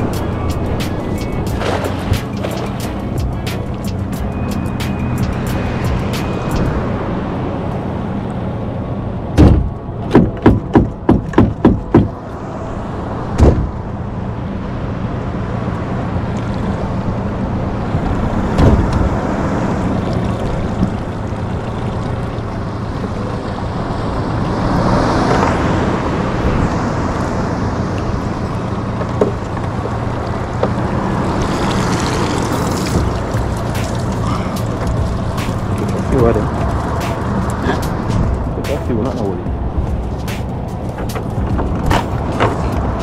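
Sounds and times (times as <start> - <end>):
water noise: 0.0 - 43.0
wind noise: 0.0 - 43.0
sharp knocks: 9.4 - 12.2, 13.4 - 13.7.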